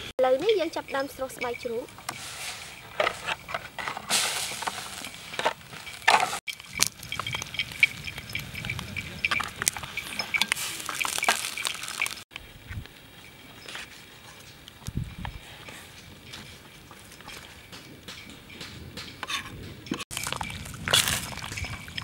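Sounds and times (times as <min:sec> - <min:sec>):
food frying in a wok: 0:10.4 - 0:12.2.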